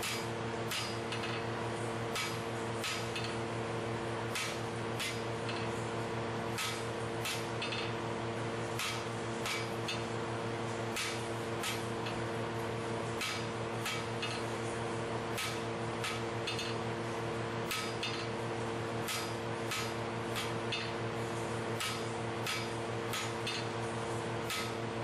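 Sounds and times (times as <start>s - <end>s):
hammer striking hot steel: 0.0s - 1.4s, 2.1s - 3.4s, 4.3s - 5.7s, 6.5s - 7.9s, 8.8s - 10.1s, 11.0s - 11.9s, 13.2s - 14.4s, 15.3s - 16.8s, 17.7s - 18.3s, 19.0s - 20.9s, 21.8s - 23.7s, 24.4s - 24.8s
low machine hum: 0.0s - 25.0s.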